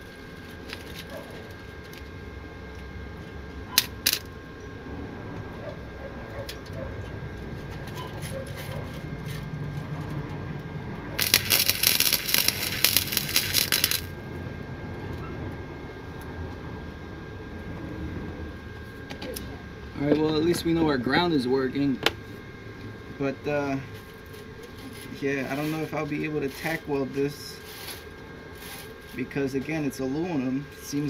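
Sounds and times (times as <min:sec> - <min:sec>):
welding arc crackling: 0:00.0 - 0:02.9, 0:03.7 - 0:04.4, 0:07.4 - 0:14.3.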